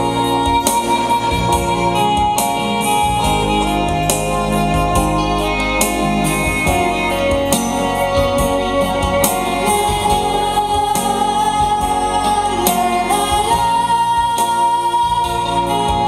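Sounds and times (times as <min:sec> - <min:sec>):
keyboard accompaniment: 0:00.0 - 0:16.0
women singing: 0:09.6 - 0:16.0.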